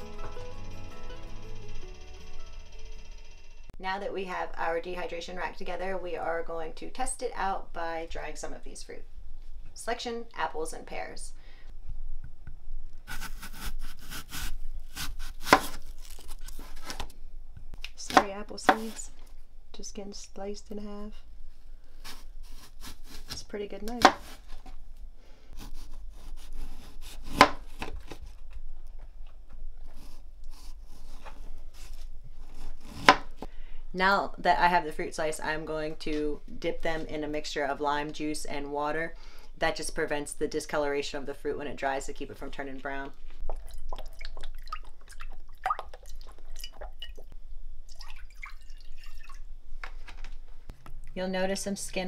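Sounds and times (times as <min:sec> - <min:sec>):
knife slicing pear: 0:13.1 - 0:17.0, 0:22.0 - 0:24.5, 0:25.6 - 0:28.2, 0:29.9 - 0:33.4
liquid dripping and splashing: 0:43.4 - 0:47.3, 0:47.9 - 0:49.5
water pouring from jug: 0:43.4 - 0:47.3, 0:47.9 - 0:49.5.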